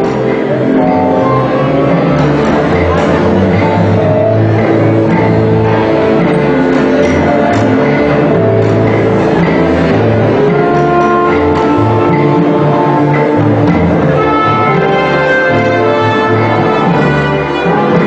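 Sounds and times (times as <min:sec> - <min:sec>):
orchestra playing dance music: 0:00.0 - 0:18.0.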